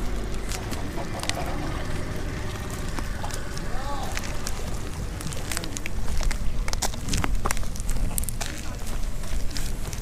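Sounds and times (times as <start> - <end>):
wind rumble on microphone: 2.4 - 10.0.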